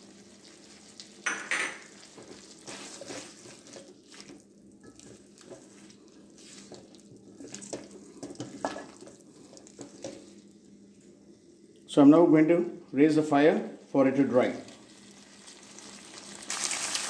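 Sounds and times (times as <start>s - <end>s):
food sizzling: 0.0s - 10.8s, 14.2s - 17.0s.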